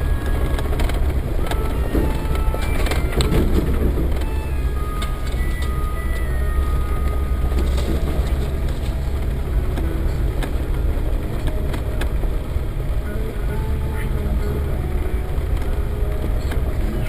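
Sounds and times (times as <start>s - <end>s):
engine and drivetrain rumble: 0.0s - 17.0s
knocks and rattles: 0.2s - 5.6s.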